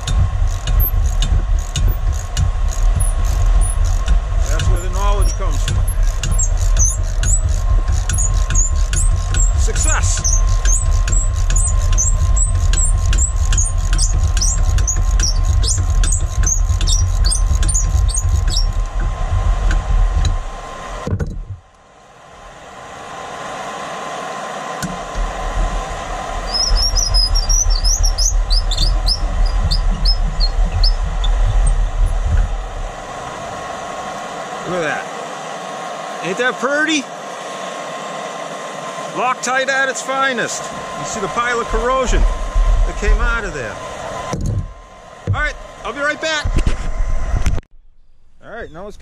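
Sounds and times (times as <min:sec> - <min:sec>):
bolt squeaking under wrench: 0:00.0 - 0:18.8
low rumble: 0:00.0 - 0:20.8, 0:24.9 - 0:35.0, 0:40.6 - 0:48.4.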